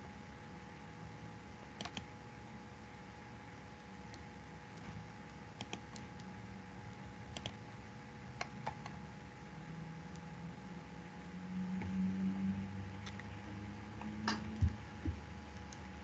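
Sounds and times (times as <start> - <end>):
faint steady hum: 0.0 - 16.0
mouse and keyboard clicks: 1.8 - 2.1, 5.6 - 6.3, 7.3 - 7.6.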